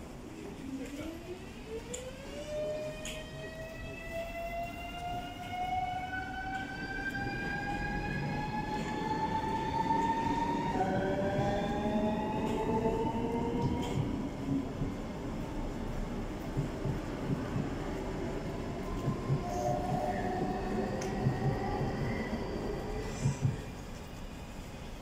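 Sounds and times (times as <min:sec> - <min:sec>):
train rumble: 0:00.0 - 0:25.0
lower whine: 0:16.5 - 0:23.8.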